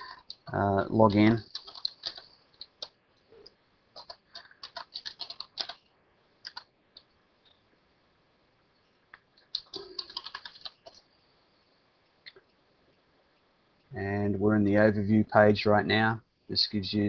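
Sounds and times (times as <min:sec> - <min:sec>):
typing on a computer keyboard: 0:01.1 - 0:03.0, 0:04.0 - 0:05.8, 0:06.4 - 0:07.1, 0:09.4 - 0:11.1.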